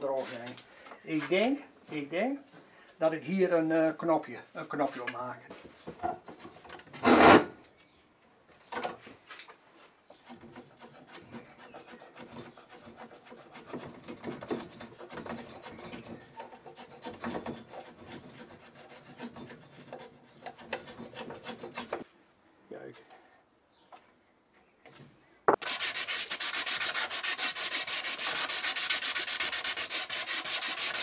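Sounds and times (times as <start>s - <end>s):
rasp scraping wood: 7.0s - 7.5s, 10.1s - 22.1s, 25.6s - 31.0s.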